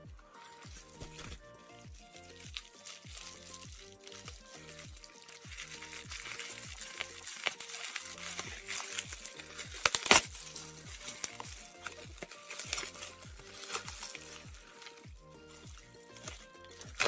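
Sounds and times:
background music with steady beat: 0.0 - 17.0
bubble wrap crinkling: 0.0 - 17.0.

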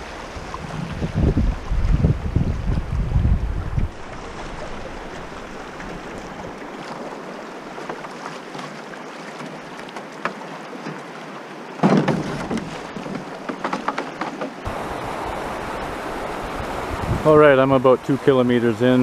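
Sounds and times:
wind on microphone: 0.0 - 6.8, 14.6 - 18.2
river water rushing: 0.0 - 19.0
stones knocking under hull: 11.8 - 14.7.

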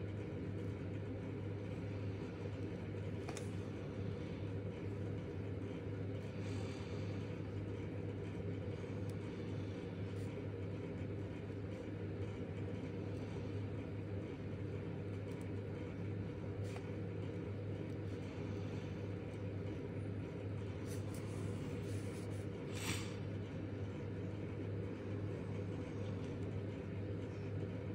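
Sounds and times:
low background hum: 0.0 - 27.9.

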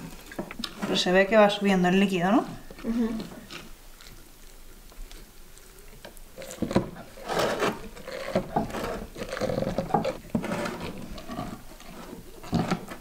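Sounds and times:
wet crunching of cabbage: 3.1 - 13.0.

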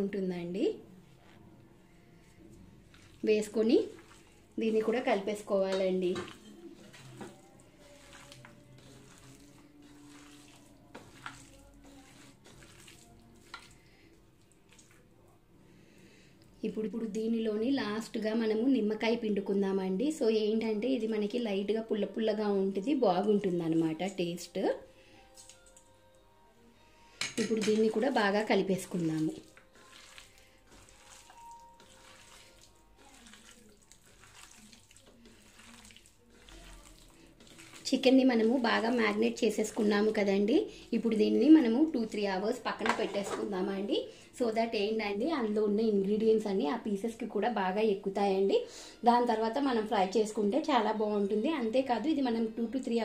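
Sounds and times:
wet squishing of kneading: 1.1 - 15.4, 25.2 - 25.9, 27.7 - 43.4
hand squelching in marinade: 3.8 - 5.0, 6.3 - 15.0, 28.9 - 40.1.

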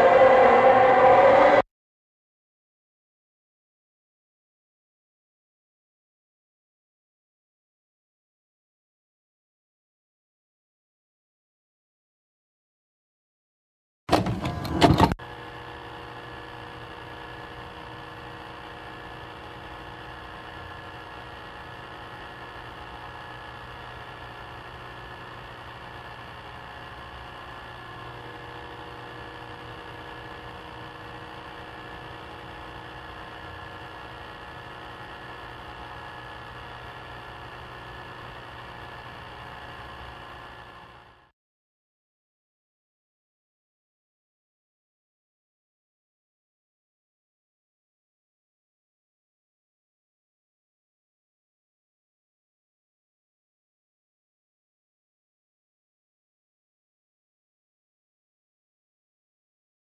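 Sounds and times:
droning hum of held tones: 0.0 - 1.7, 14.2 - 41.3.

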